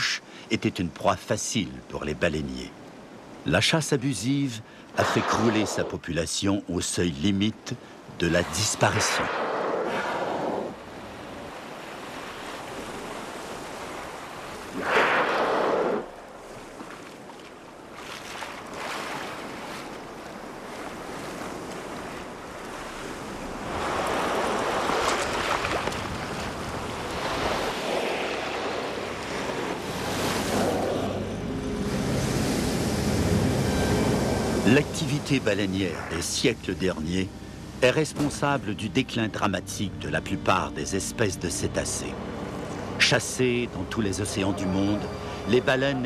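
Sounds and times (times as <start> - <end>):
rush of water: 0.0 - 39.5
water splashing: 8.2 - 38.6.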